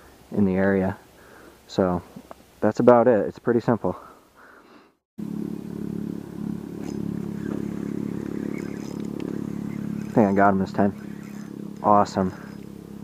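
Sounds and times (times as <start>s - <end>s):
steady engine hum: 5.2s - 13.0s.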